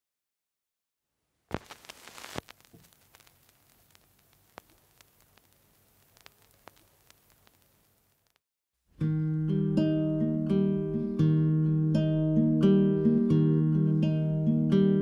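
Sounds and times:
low hiss: 0:01.2 - 0:08.4.

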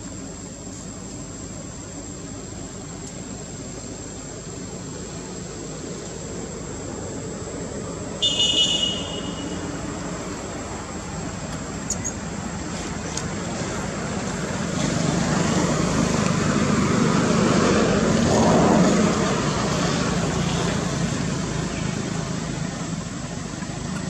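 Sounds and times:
motor vehicle passing by: 0:13.5 - 0:22.9.

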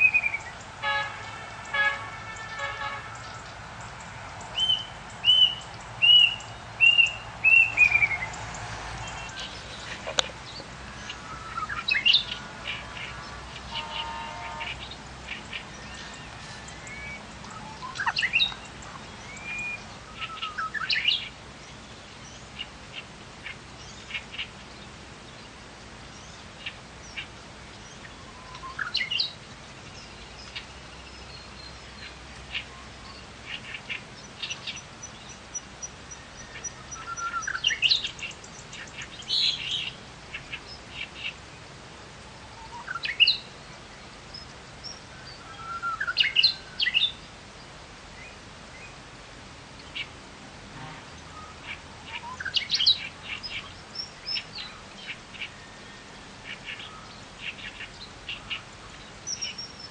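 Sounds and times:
bird whistles and chirps: 0:04.6 - 0:08.3, 0:15.8 - 0:18.6, 0:19.2 - 0:21.1, 0:36.5 - 0:38.1, 0:45.4 - 0:47.0
high ticks: 0:08.3 - 0:10.7.

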